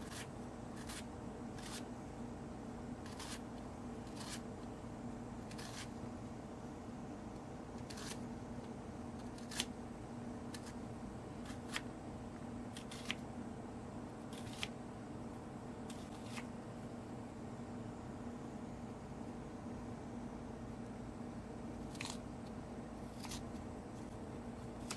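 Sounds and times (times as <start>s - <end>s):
knife cutting onion on board: 0.0s - 1.9s, 3.0s - 4.5s, 5.4s - 6.0s, 7.8s - 8.2s, 9.2s - 9.8s, 11.4s - 11.9s, 12.7s - 13.2s, 14.3s - 14.8s, 15.8s - 16.5s
faint steady hum: 0.0s - 24.9s.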